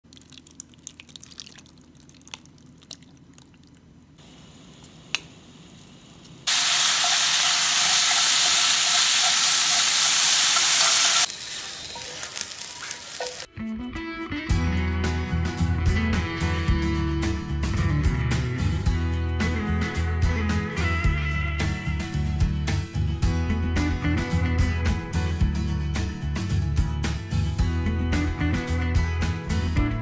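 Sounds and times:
beef sizzling in a frying pan: 6.5 - 13.5
guitar music: 13.5 - 22.6.

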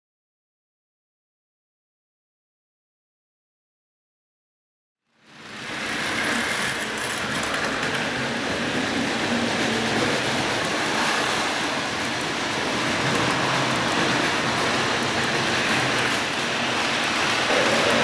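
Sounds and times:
model train wheels and motors: 5.0 - 18.0
clicking over rail joints: 6.2 - 18.0.

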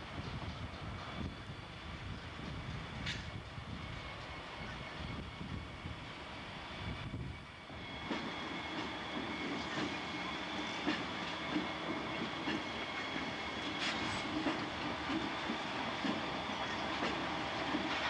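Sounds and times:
freight train rumbling past: 0.0 - 18.0
train wheels clicking over rail joints: 7.9 - 18.0.

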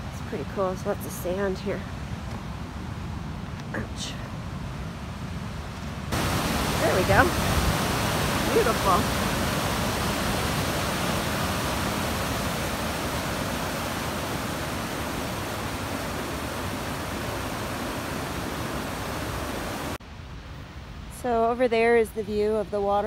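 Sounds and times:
rushing whitewater rapids: 6.1 - 20.0.

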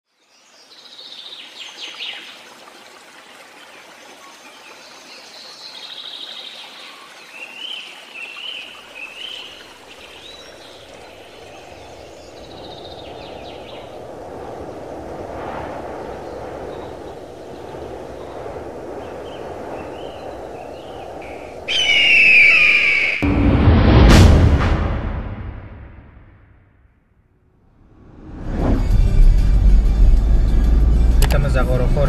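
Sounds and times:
running water rushing: 0.3 - 15.0.

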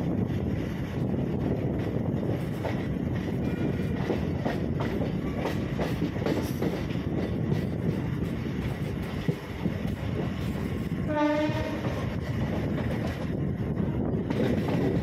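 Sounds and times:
train rumble: 0.0 - 15.0
train wheels clicking over rail joints: 0.8 - 15.0.

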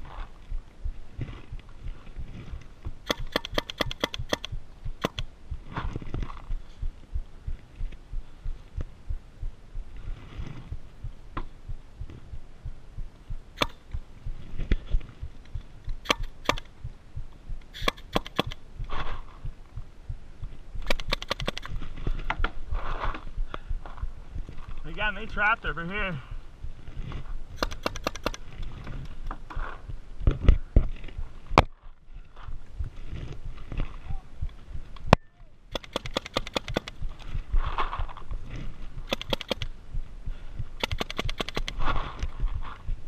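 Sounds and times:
low thumping rumble: 0.0 - 3.0, 4.5 - 16.0, 16.7 - 17.7, 18.6 - 20.9, 21.7 - 27.6, 28.6 - 35.7, 37.0 - 40.8, 41.8 - 43.0
paintball markers firing: 3.0 - 5.3, 13.6 - 14.0, 15.9 - 16.7, 17.7 - 18.6, 20.8 - 21.8, 27.6 - 29.3, 35.7 - 37.0, 39.0 - 39.7, 40.8 - 41.8.

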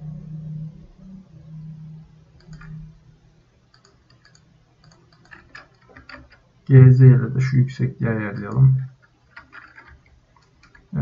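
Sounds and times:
low hum: 0.0 - 9.0
keyboard and mouse clicking: 2.4 - 2.9, 3.7 - 6.8, 8.3 - 11.0.

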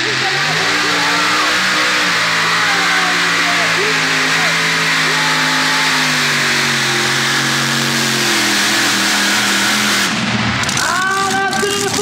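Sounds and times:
tractor engine running under load: 0.0 - 12.0.

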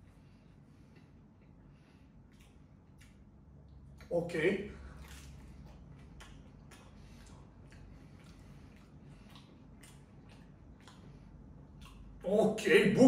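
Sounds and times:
chewing crunchy crust: 2.3 - 12.3.

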